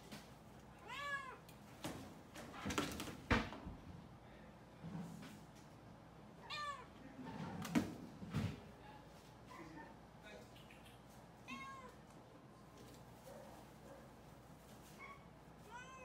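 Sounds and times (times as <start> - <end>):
cat meowing: 0.8 - 1.4, 6.4 - 6.9, 11.4 - 12.0, 15.6 - 16.0.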